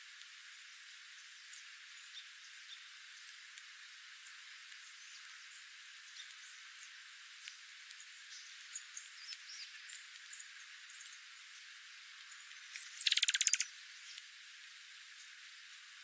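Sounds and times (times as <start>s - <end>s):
birds giving high chips: 12.2s - 13.7s
rapid bird wingbeats: 13.0s - 13.7s.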